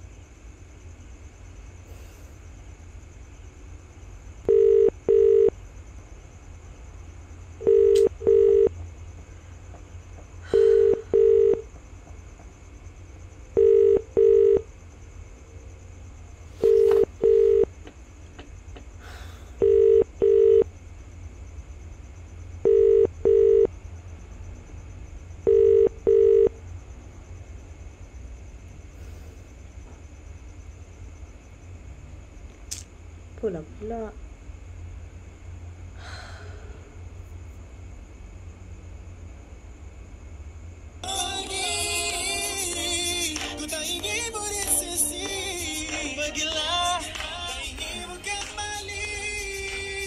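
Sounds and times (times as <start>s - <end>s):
telephone ringback double beeps: 22.7s - 23.7s.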